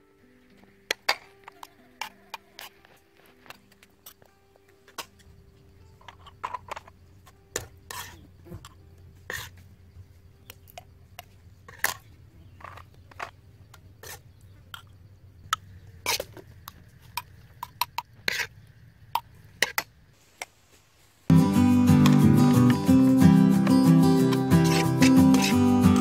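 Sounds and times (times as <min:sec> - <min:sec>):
metal spoon scraping snail shell: 0:07.9 - 0:08.2, 0:24.3 - 0:26.0.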